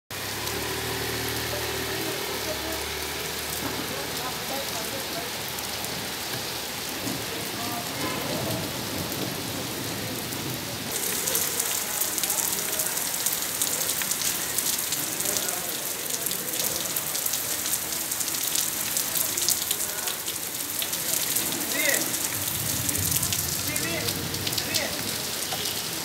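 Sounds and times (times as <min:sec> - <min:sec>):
heavy rain on wet road: 0:00.1 - 0:26.0
raindrops pattering close by: 0:00.1 - 0:26.0
scooter engine passing: 0:00.2 - 0:05.6.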